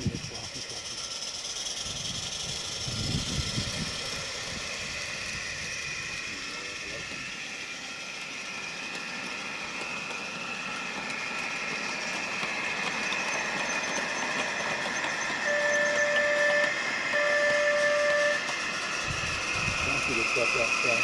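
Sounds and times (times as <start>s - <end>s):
model locomotives humming: 0.0s - 21.0s
locomotive horn blasts: 15.4s - 18.4s.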